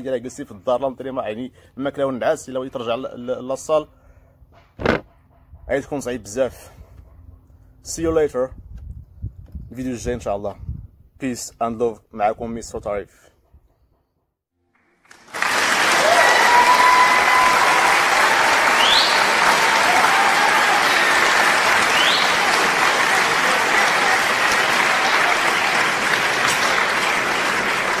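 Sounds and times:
large audience applauding: 14.7s - 28.0s
short rising whistles: 18.6s - 19.4s, 20.8s - 22.5s.

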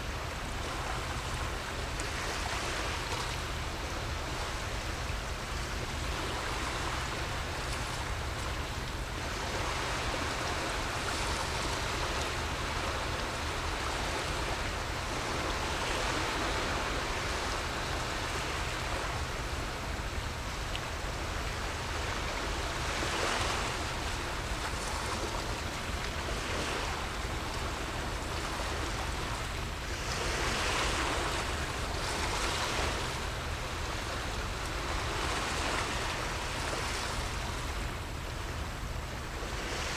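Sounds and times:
constant low rumble: 0.0s - 39.9s
small waves washing ashore: 0.0s - 39.9s.

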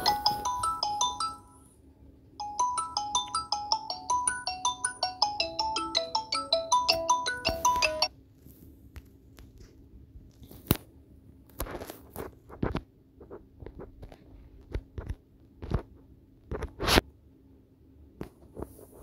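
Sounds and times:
marimba-like phone ringtone: 0.0s - 1.7s, 2.4s - 8.1s.

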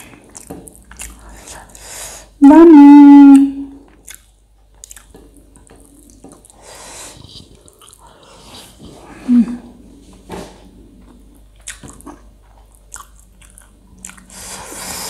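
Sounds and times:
person chewing food: 0.0s - 2.3s, 3.8s - 9.3s, 9.9s - 15.0s
short loud low tone: 2.4s - 3.8s.

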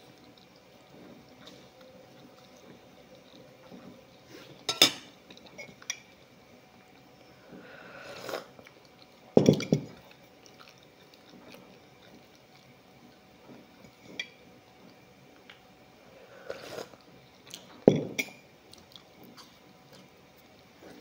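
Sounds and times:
quiet chewing: 0.0s - 21.0s.

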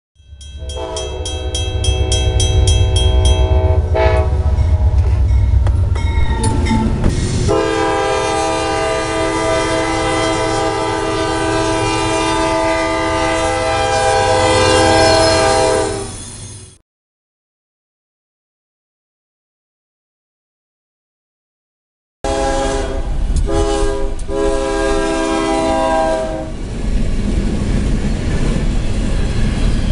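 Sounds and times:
crossing bell ringing: 0.2s - 7.2s
train rumbling: 0.2s - 16.8s, 22.3s - 29.9s
locomotive air horn: 0.6s - 5.4s, 7.5s - 16.2s, 22.3s - 26.6s.

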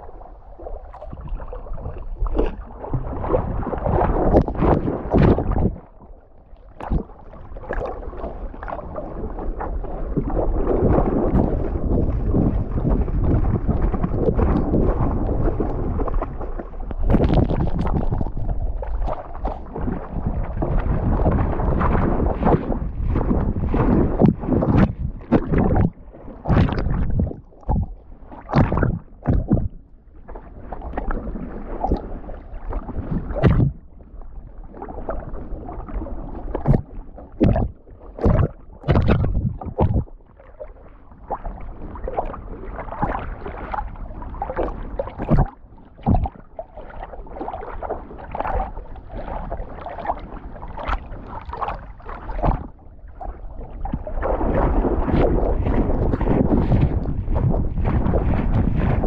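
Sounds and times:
rush of water: 0.0s - 59.0s.

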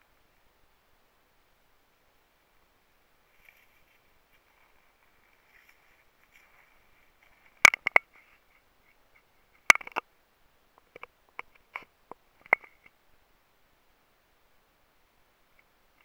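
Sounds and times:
sharp clicks and knocks: 7.6s - 8.1s, 9.7s - 10.0s.

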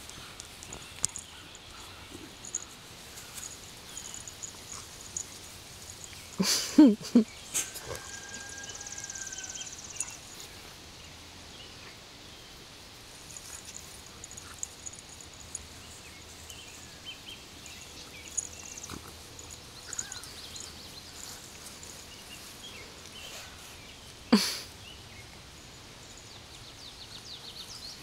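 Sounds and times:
faint steady tone: 0.0s - 10.8s
dogs play-wrestling: 0.6s - 6.5s, 13.1s - 16.5s, 17.9s - 23.6s.

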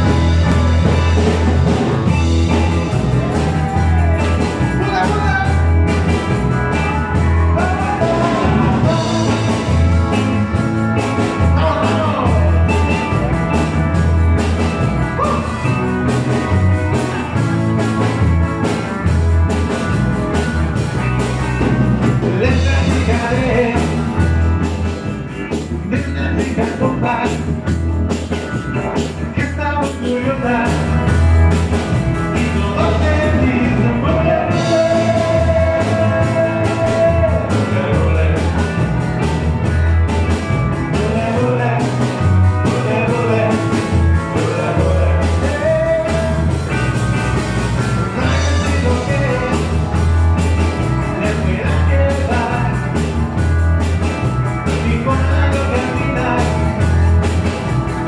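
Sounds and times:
drum beat: 0.0s - 27.1s
electric guitars and bass: 0.0s - 58.0s
person singing: 2.5s - 10.3s, 11.4s - 13.2s, 15.0s - 15.8s, 22.2s - 24.4s, 25.8s - 27.6s, 29.2s - 31.1s, 32.2s - 39.1s, 40.8s - 46.7s, 48.1s - 50.1s, 50.7s - 53.2s, 54.6s - 57.2s.

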